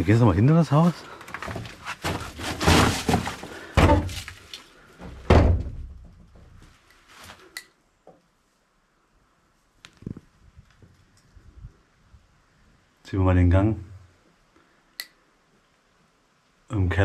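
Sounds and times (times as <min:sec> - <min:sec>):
heavy thuds: 0:01.3 - 0:04.4, 0:05.0 - 0:06.6.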